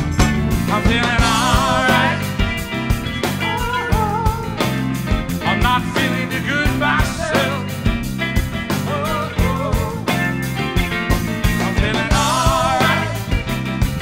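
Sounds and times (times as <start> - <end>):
rock band playing: 0.0 - 14.0
person singing: 3.2 - 4.7, 8.4 - 10.2.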